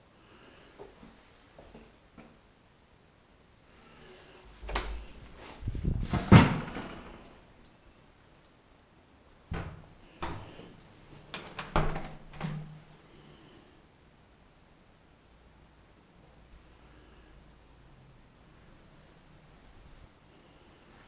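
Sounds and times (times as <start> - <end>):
door knocks and clatters: 11.4 - 12.8.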